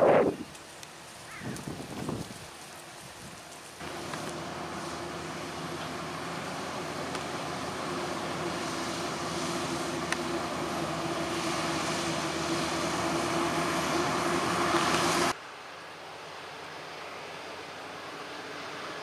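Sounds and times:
harvester machine drone: 3.4s - 15.4s.

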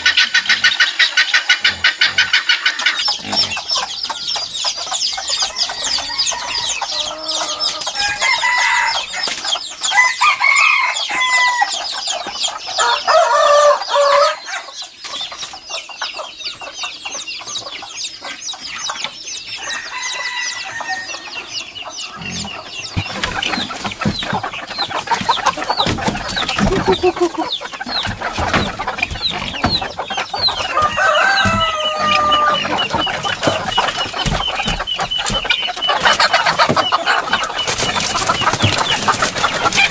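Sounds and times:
roosters crowing: 0.0s - 14.8s, 19.5s - 39.9s
chickens clucking: 0.0s - 39.9s
wings flapping and scuffling: 22.9s - 39.9s.

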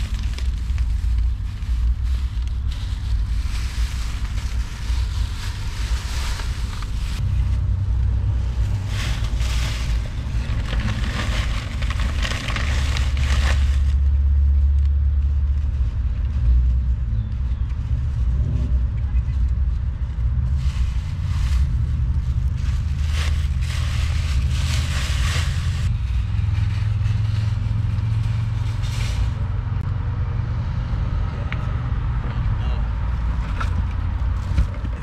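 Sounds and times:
plastic bags crinkling: 0.0s - 7.7s, 8.5s - 14.1s, 20.5s - 29.0s
low rumble: 0.0s - 35.0s.

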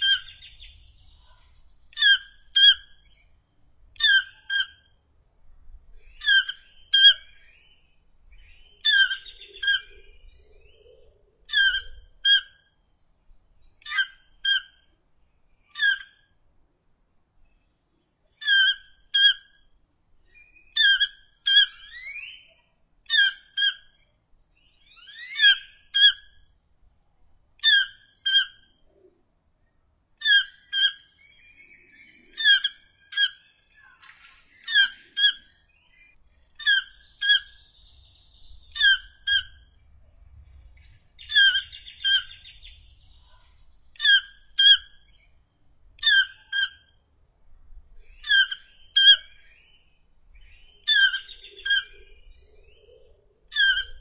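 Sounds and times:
toucan calling: 0.0s - 3.2s, 4.0s - 5.0s, 6.0s - 7.5s, 8.4s - 12.8s, 13.8s - 15.0s, 15.6s - 16.4s, 18.4s - 24.0s, 24.8s - 26.5s, 27.6s - 29.1s, 30.2s - 39.8s, 41.2s - 45.2s, 46.0s - 47.0s, 48.0s - 49.6s, 50.4s - 54.0s.

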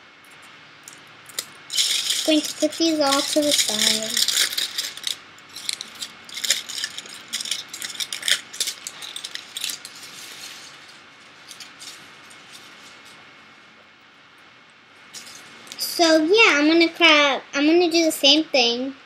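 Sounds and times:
aluminium foil crinkling: 0.8s - 13.2s.

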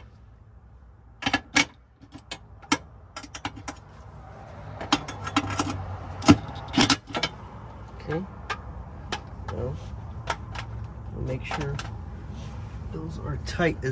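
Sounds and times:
metal tools clinking: 4.8s - 9.6s, 10.2s - 12.0s.

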